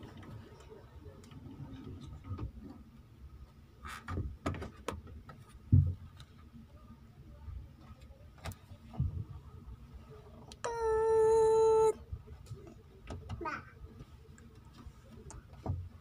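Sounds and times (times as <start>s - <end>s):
faint steady hum: 5.2s - 16.0s.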